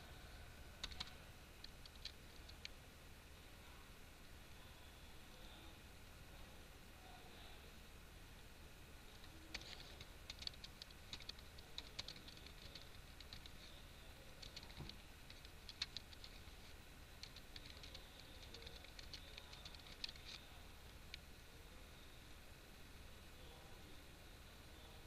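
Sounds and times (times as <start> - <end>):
faint keyboard typing: 0.8 - 2.8, 9.1 - 21.3.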